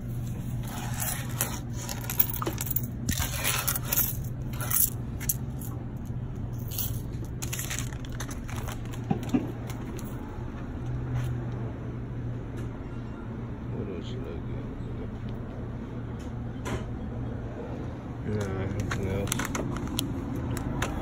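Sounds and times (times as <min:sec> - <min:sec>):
steady low hum: 0:00.0 - 0:21.0
coins scraped off countertop: 0:00.5 - 0:05.4
coins clinking in the hand: 0:00.6 - 0:08.7.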